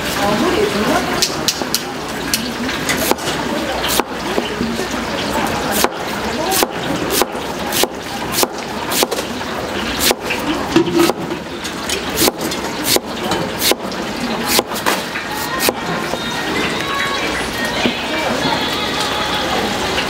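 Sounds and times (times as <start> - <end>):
knife chopping on cutting board: 3.0 - 3.2, 3.9 - 4.5, 5.7 - 9.2, 10.0 - 10.3, 12.2 - 13.8, 14.5 - 15.0.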